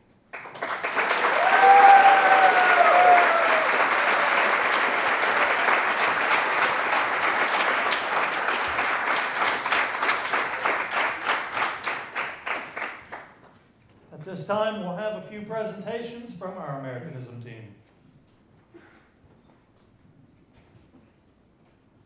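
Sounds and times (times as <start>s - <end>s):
audience applauding: 0.3s - 13.5s.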